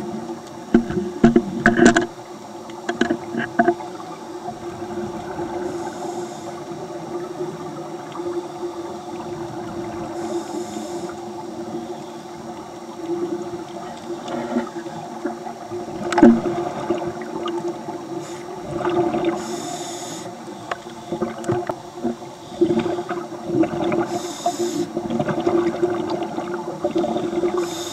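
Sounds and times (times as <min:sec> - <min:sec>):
regulator inhalation hiss: 0:05.6 - 0:06.8, 0:10.1 - 0:12.3, 0:18.1 - 0:18.7, 0:19.3 - 0:21.2, 0:24.0 - 0:25.0, 0:27.4 - 0:27.9.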